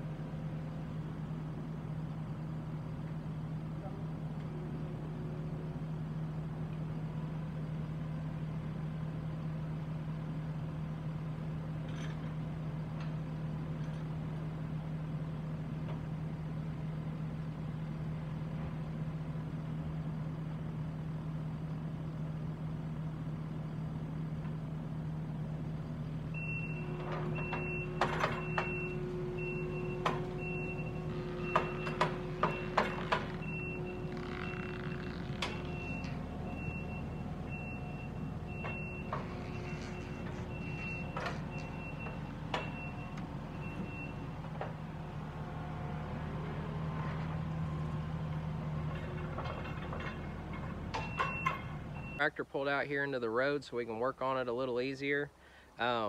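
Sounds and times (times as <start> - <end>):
diesel engine running: 0.0 - 53.5
reversing alarm beeping: 26.3 - 45.3, 50.9 - 52.3.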